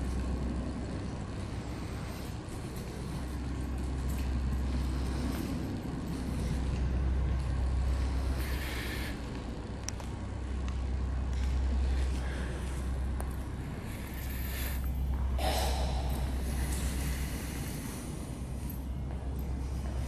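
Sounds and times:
machinery droning hum: 0:00.0 - 0:20.0.

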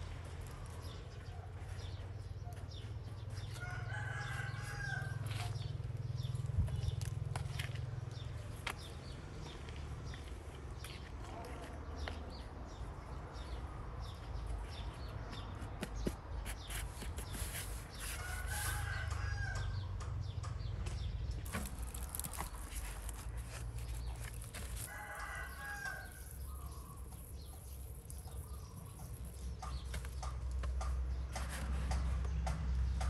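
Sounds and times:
rooster crowing: 0:03.6 - 0:05.6, 0:18.2 - 0:19.8, 0:24.9 - 0:26.4.

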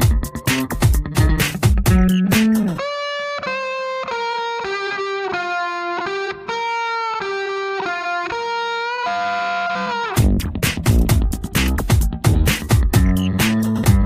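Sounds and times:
beat with heavy bass and drums: 0:00.0 - 0:02.8, 0:10.2 - 0:14.0
distorted electric guitar melody: 0:00.0 - 0:14.0.

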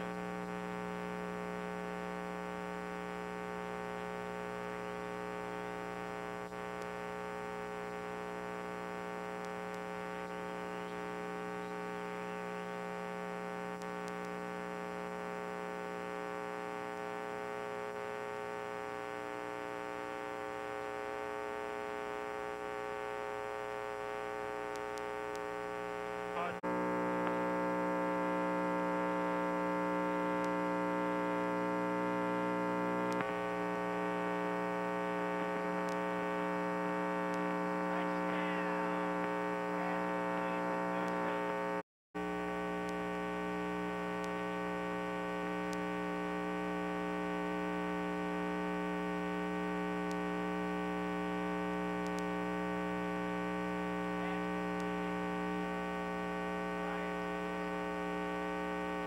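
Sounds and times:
electrical mains hum: 0:00.0 - 0:59.0.

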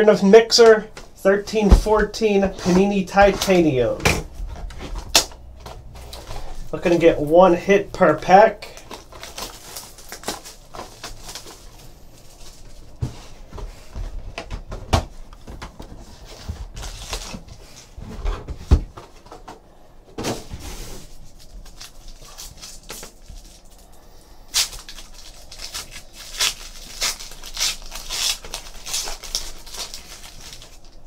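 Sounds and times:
wrapper crinkling: 0:05.0 - 0:13.0, 0:16.2 - 0:17.9, 0:20.8 - 0:31.0.

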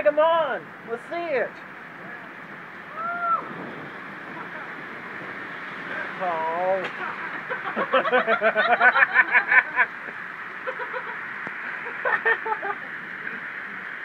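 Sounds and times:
rain hissing: 0:00.0 - 0:14.0
tyres on wet street: 0:00.0 - 0:14.0
people laughing: 0:07.0 - 0:13.4.

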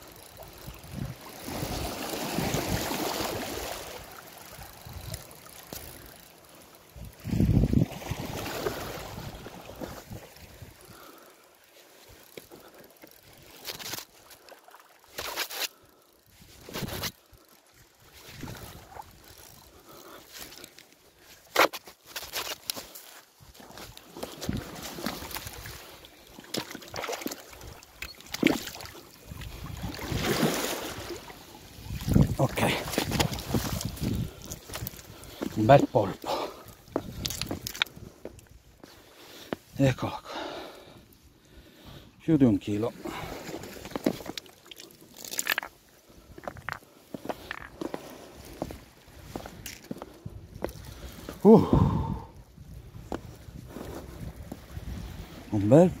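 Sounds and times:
wading through shallow water: 0:00.0 - 0:56.0
water sloshing and splashing: 0:00.3 - 0:38.6, 0:42.9 - 0:51.4
small waves lapping over rocks: 0:00.4 - 0:10.9, 0:22.7 - 0:37.9
rubber boots on stones: 0:32.1 - 0:38.9, 0:43.8 - 0:44.4, 0:45.2 - 0:50.7.

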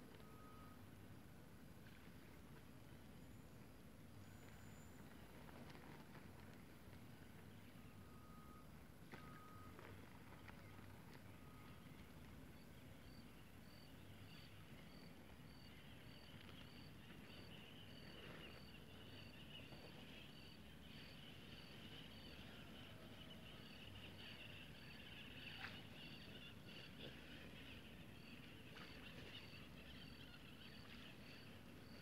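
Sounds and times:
cricket chirping: 0:00.1 - 0:00.9, 0:07.7 - 0:10.6, 0:11.4 - 0:32.0.

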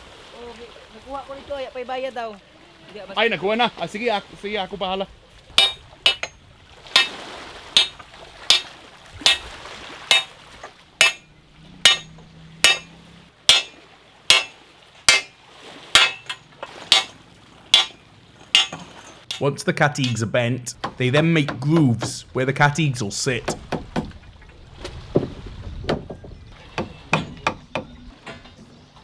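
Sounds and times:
hammering on metal pipe: 0:05.6 - 0:07.2, 0:07.8 - 0:09.5, 0:10.1 - 0:10.3, 0:11.0 - 0:15.4, 0:16.0 - 0:17.1, 0:17.7 - 0:20.2.

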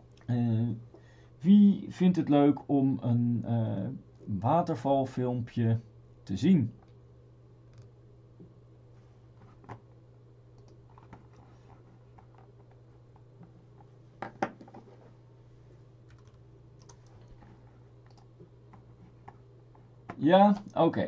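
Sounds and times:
steady low hum: 0:00.0 - 0:21.0
computer keyboard clicks: 0:16.1 - 0:17.2, 0:18.0 - 0:18.3.

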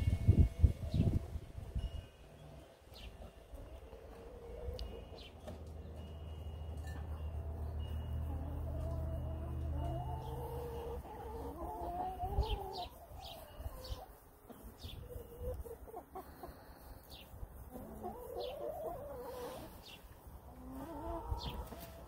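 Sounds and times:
hens clucking: 0:02.9 - 0:05.8, 0:07.4 - 0:22.0.

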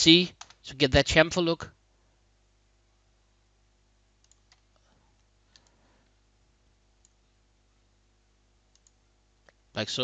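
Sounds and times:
faint computer control clicks: 0:04.2 - 0:06.2, 0:08.7 - 0:09.6.

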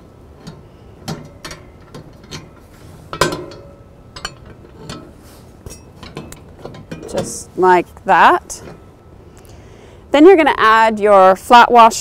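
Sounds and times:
metal parts clinking: 0:00.4 - 0:07.5.

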